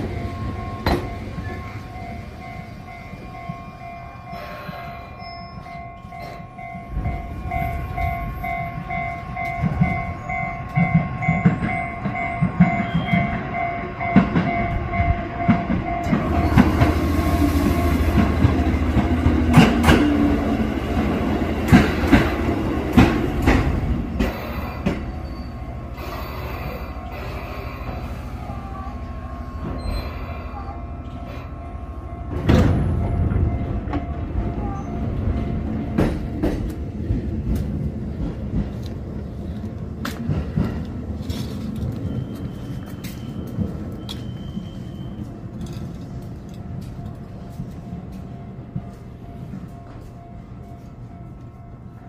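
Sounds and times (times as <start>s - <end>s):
train wheels clacking on rail joints: 0.0s - 3.8s, 5.6s - 28.1s, 32.3s - 50.2s
two-tone crossing bell: 0.0s - 18.8s, 24.5s - 36.3s, 42.0s - 52.0s
electric train running hum: 0.0s - 52.0s.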